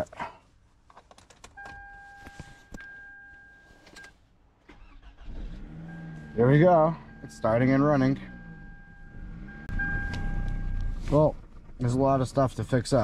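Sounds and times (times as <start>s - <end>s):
car engine starting: 4.6s - 13.0s
car starter cranking: 4.7s - 13.0s.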